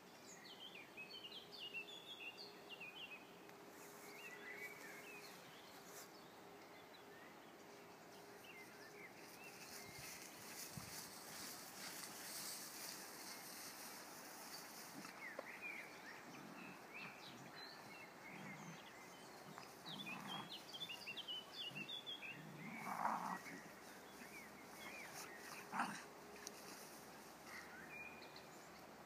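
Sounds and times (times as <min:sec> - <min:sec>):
dogs playing in grass: 0:03.5 - 0:29.0
small birds chirping: 0:03.8 - 0:28.9.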